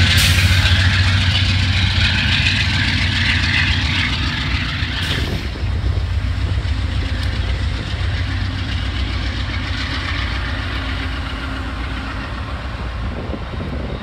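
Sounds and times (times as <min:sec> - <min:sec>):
diesel locomotive engine rumbling: 0:00.0 - 0:14.0
train coaches rolling past: 0:00.0 - 0:14.0.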